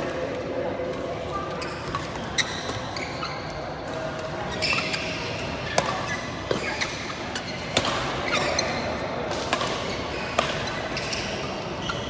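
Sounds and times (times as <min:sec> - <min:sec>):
sports hall background noise: 0:00.0 - 0:12.0
rackets striking shuttlecock: 0:05.7 - 0:07.0, 0:07.7 - 0:08.2, 0:09.3 - 0:11.3.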